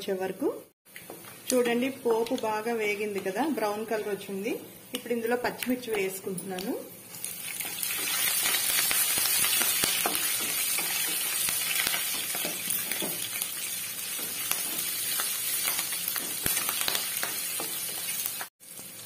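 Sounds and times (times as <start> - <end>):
chillies sizzling in hot oil: 0.9 - 19.0.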